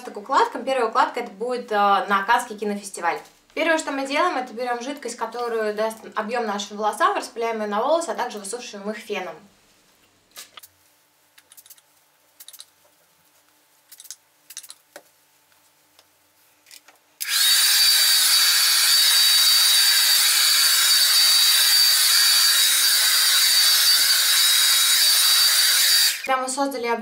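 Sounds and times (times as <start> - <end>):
hair dryer running: 17.2 - 26.3.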